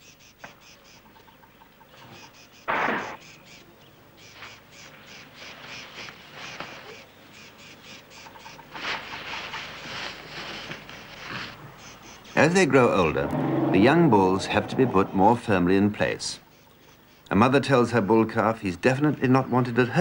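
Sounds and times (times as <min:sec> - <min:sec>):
noisy animal sound: 0:00.0 - 0:17.8
insects chirping: 0:10.9 - 0:17.3.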